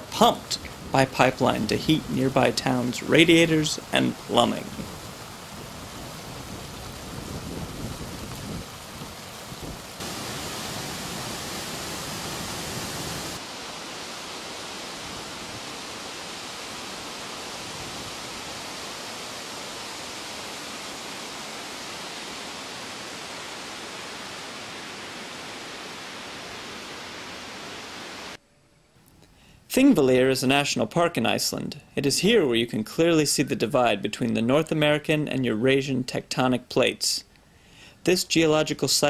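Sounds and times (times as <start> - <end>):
boiling water and steam hissing: 0.0 - 28.4.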